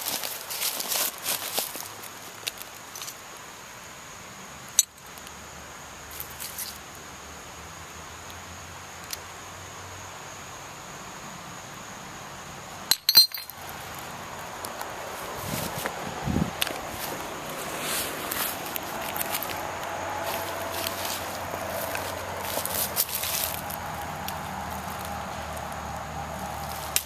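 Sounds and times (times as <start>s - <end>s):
soft rustle: 0.0s - 3.2s, 14.8s - 25.1s
low hiss: 0.0s - 27.0s
hard objects clinking: 12.9s - 13.6s.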